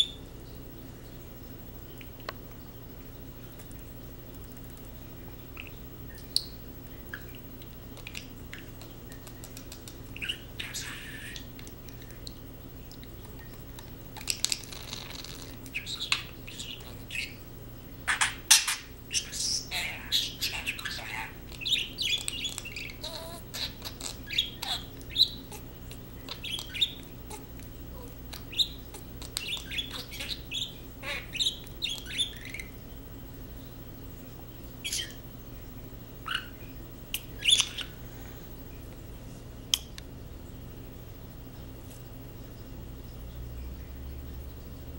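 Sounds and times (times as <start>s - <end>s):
budgerigar chirping: 10.1s - 11.5s, 14.2s - 17.4s, 18.1s - 32.8s, 34.8s - 35.2s, 36.2s - 38.0s.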